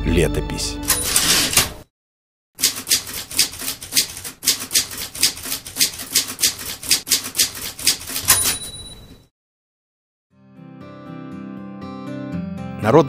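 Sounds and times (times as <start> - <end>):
typewriter bell ring: 0.9 - 1.8, 2.6 - 9.3
typewriter keystrokes clacking: 0.9 - 1.8, 2.6 - 9.0.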